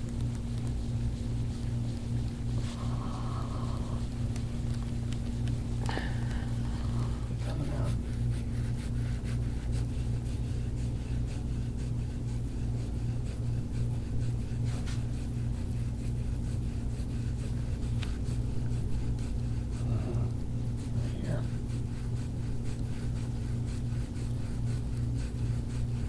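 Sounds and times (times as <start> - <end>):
soft scraping on skin: 0.0 - 26.0.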